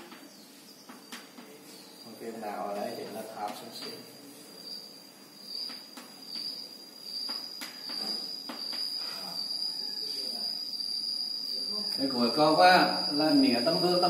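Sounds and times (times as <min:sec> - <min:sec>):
chalk tapping on blackboard: 0:05.6 - 0:06.6, 0:07.2 - 0:08.9
steady high-pitched tone: 0:08.0 - 0:14.0.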